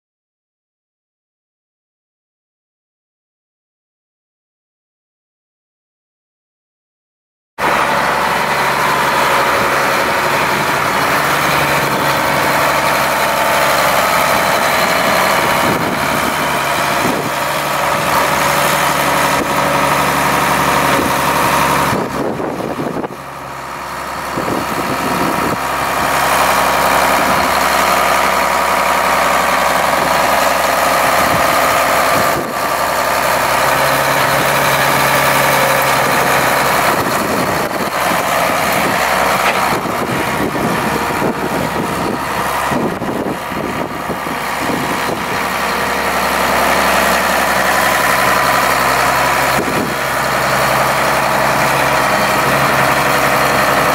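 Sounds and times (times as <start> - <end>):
tractor diesel engine idling: 7.6 - 53.9.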